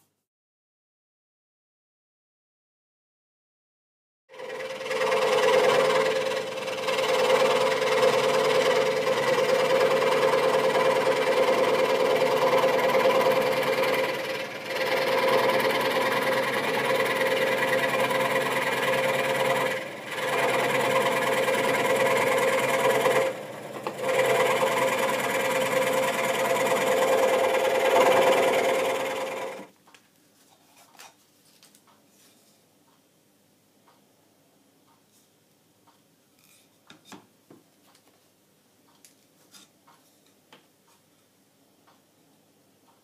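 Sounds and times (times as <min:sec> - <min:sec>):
scroll saw cutting wood: 0:04.3 - 0:29.7.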